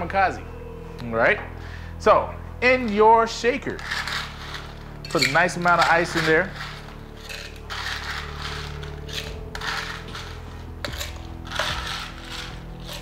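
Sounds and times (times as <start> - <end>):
ice cubes clattering into shaker: 3.8 - 13.0.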